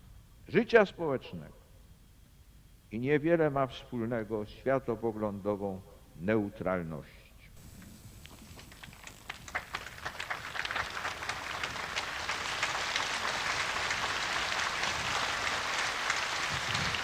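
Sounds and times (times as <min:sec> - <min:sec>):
crowd applauding: 0:07.6 - 0:17.0.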